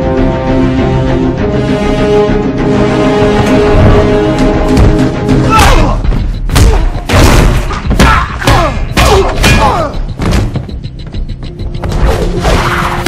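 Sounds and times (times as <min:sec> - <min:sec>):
driving film score: 0:00.0 - 0:13.0.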